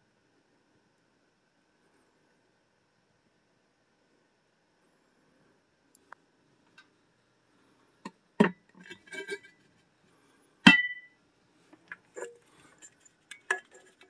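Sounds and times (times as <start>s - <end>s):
knocks and clinks of glass: 10.7s - 11.1s.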